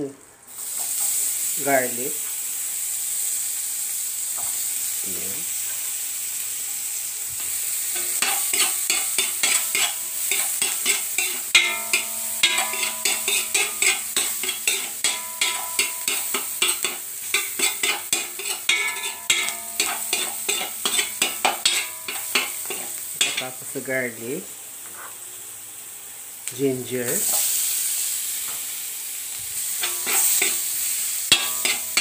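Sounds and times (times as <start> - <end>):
garlic sizzling in butter: 0.2 - 32.0
spatula scraping a pan: 7.9 - 23.5, 29.6 - 32.0
pan ringing: 10.9 - 18.0, 18.6 - 23.5, 31.3 - 32.0.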